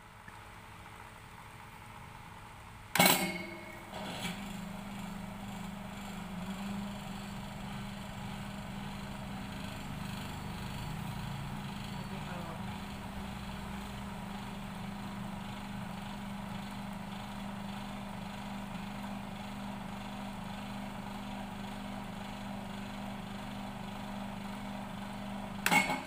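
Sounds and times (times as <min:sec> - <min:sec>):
electric motor hum: 0:03.8 - 0:25.6.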